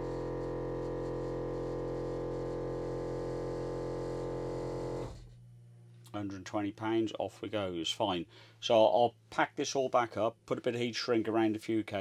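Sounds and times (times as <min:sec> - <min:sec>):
air compressor humming: 0:00.0 - 0:05.3.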